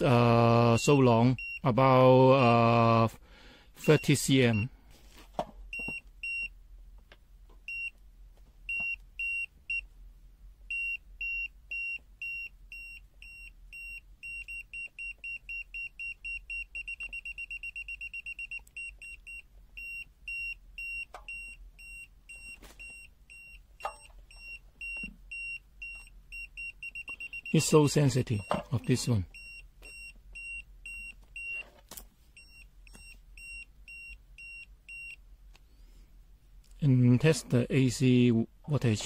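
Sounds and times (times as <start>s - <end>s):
voltage detector beeping: 3.8s - 4.7s, 10.7s - 31.6s.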